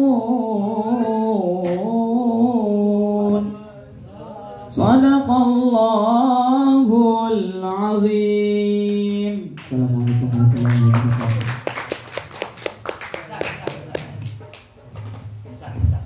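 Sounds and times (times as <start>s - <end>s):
man singing unaccompanied: 0.0s - 11.2s
hand claps: 9.6s - 15.3s.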